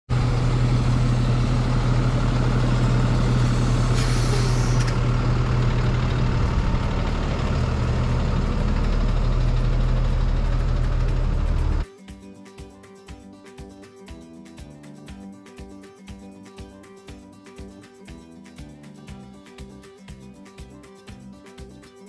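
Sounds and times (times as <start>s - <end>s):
diesel truck engine idling: 0.1s - 11.8s
short hiss: 3.9s - 4.9s.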